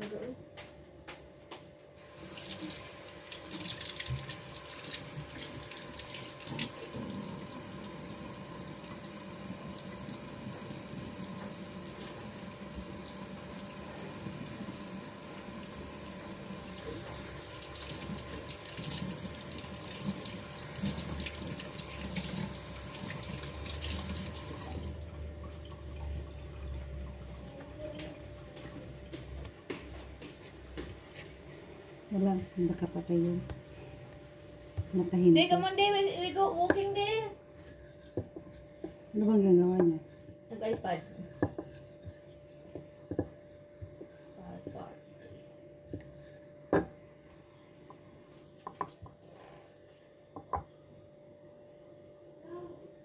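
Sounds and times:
tap water running into sink: 2.0s - 29.2s.

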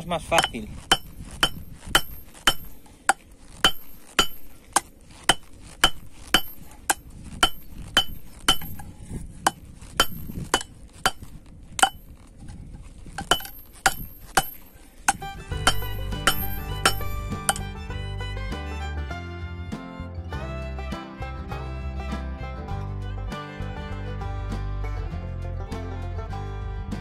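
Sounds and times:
hammer striking steel on anvil: 0.3s - 8.9s, 9.5s - 12.0s, 13.2s - 17.8s.

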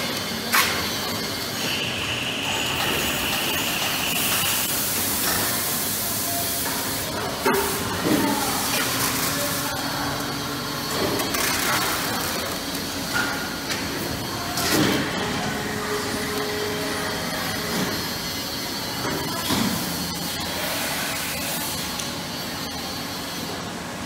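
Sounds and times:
machine hiss: 0.5s - 11.3s.

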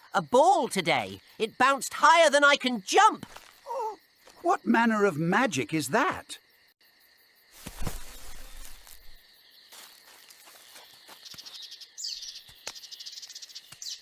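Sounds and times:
insect chirring: 0.0s - 14.0s
high bird chirps: 11.2s - 14.0s.

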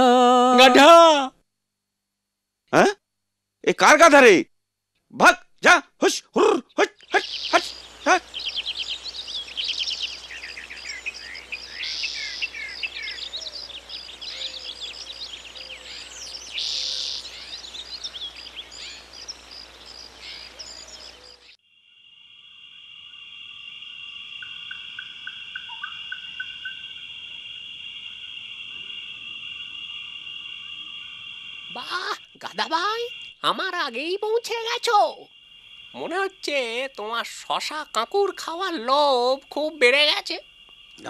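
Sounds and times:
crickets chirring: 0.0s - 1.3s, 2.7s - 41.0s
faint trilling insect: 0.0s - 41.0s
birds chirping: 6.0s - 21.6s, 24.3s - 41.0s.

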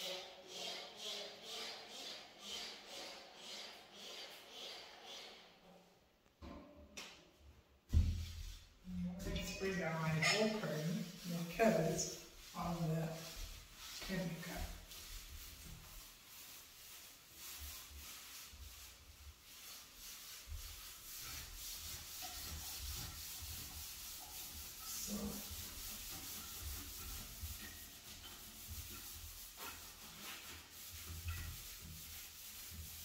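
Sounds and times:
scrubbing shower surfaces: 7.9s - 33.0s.

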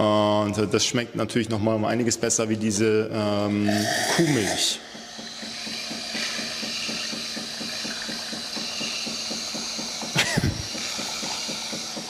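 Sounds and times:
coffee machine pump pulsing: 1.9s - 12.0s
steam hissing through milk: 3.7s - 12.0s.

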